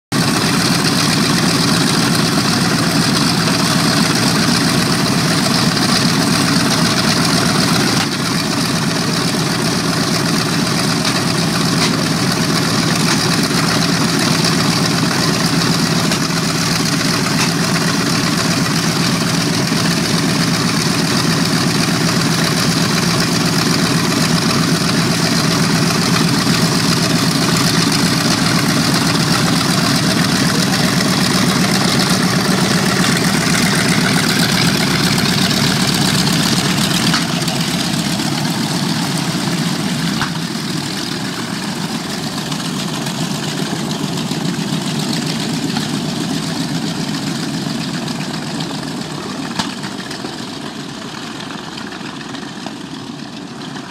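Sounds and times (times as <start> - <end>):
radial aircraft engines idling: 0.2 - 53.9.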